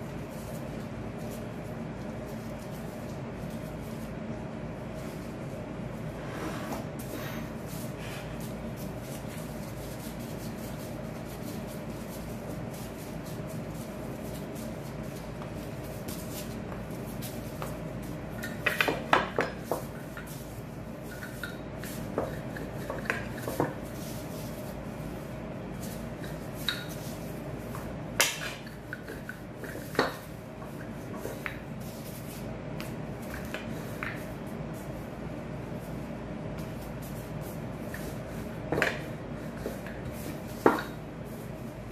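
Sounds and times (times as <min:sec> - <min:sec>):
steady low hum: 0:00.0 - 0:41.9.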